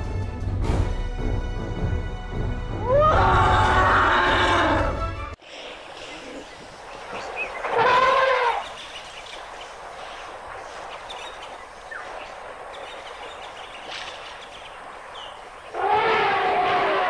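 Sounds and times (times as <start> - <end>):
elephant trumpeting: 2.8 - 5.0, 7.6 - 8.8, 15.7 - 17.0
faint bird chirps: 5.6 - 15.8.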